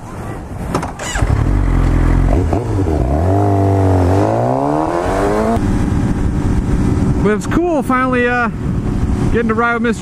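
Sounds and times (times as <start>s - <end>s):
motorcycle engine revving: 1.0s - 7.2s.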